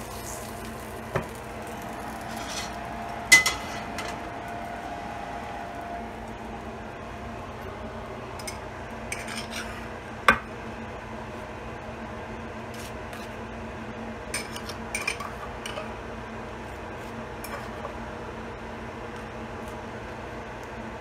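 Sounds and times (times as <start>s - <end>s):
steady low hum: 0.0s - 21.0s
knife scraping a bowl: 2.2s - 4.0s, 9.1s - 9.9s.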